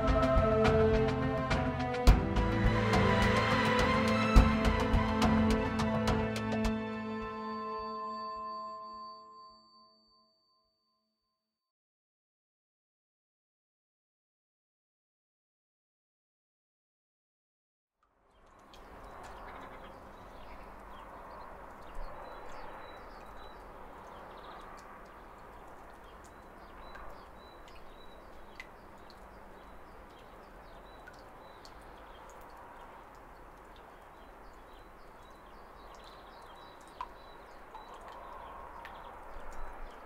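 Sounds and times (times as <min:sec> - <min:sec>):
background noise: 0:18.1 - 0:40.0.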